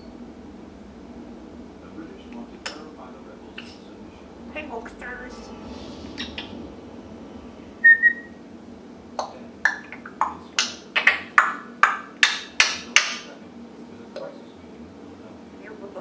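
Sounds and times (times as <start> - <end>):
parrot whistle: 6.2 - 6.6, 7.8 - 8.4.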